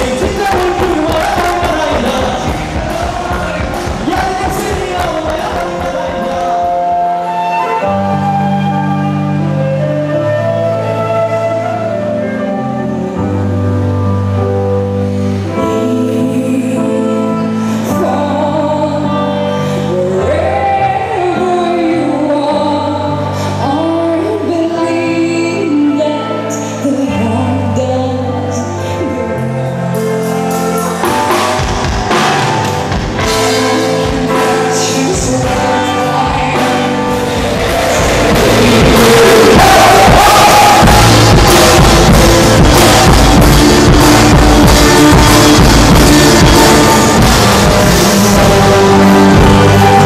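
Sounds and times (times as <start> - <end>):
drums and cymbals: 0.0 - 6.8, 30.4 - 50.0
sustained keyboard chords: 0.0 - 50.0
woman singing: 15.6 - 29.8, 33.5 - 37.1, 38.0 - 50.0.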